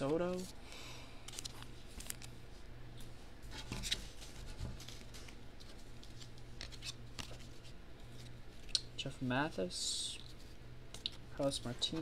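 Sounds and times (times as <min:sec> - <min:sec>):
cards rustling and sliding: 0:01.2 - 0:02.4, 0:03.6 - 0:08.7.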